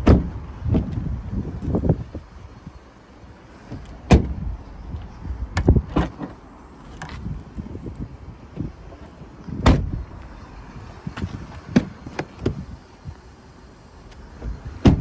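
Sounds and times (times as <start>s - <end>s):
car door and tailgate clunks: 0.0s - 1.0s, 3.7s - 4.5s, 5.5s - 6.4s, 9.5s - 10.1s, 11.1s - 12.6s, 14.4s - 15.0s.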